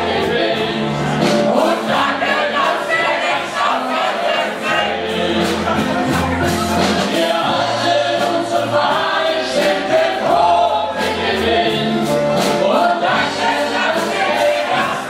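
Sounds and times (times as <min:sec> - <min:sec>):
group singing in chorus: 0:00.0 - 0:15.0
instrumental music with bass line: 0:00.0 - 0:15.0.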